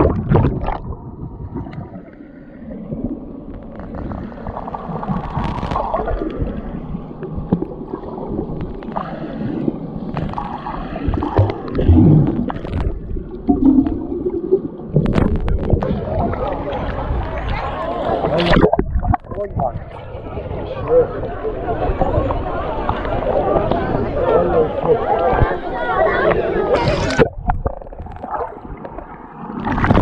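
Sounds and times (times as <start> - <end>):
muffled underwater gurgling: 0.0 - 30.0
underwater clicks and knocks: 5.0 - 9.1, 10.1 - 17.3, 18.2 - 19.8, 26.2 - 30.0.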